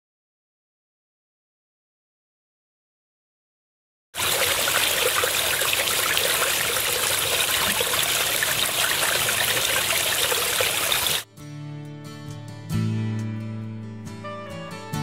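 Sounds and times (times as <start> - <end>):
water trickling over stones: 4.2 - 11.2
soft guitar music: 11.2 - 15.0.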